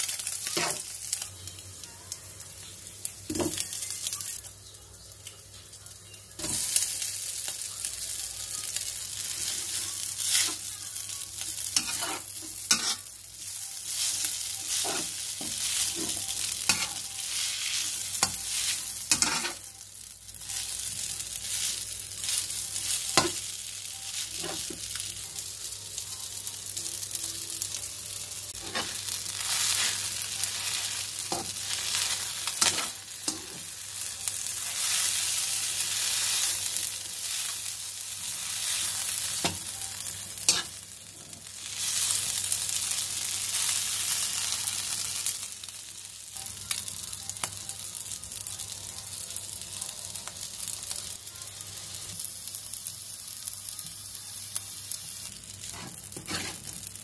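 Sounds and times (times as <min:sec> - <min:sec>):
noodles sizzling in a wok: 0:00.0 - 0:57.0
spatula scraping a pan: 0:11.8 - 0:13.0, 0:14.0 - 0:19.6, 0:55.6 - 0:56.8.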